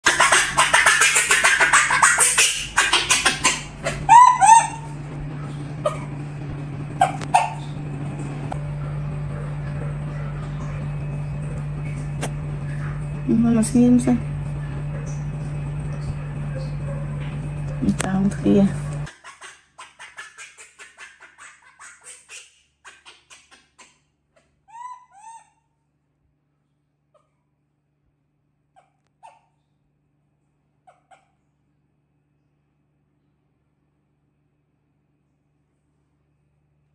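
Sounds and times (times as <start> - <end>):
baby macaque coo calls: 0.0 - 4.9, 24.7 - 25.6
baby monkey squealing: 0.0 - 4.9, 7.0 - 7.7, 19.1 - 25.7, 28.8 - 29.5, 30.9 - 31.3
steady low hum: 0.0 - 19.2.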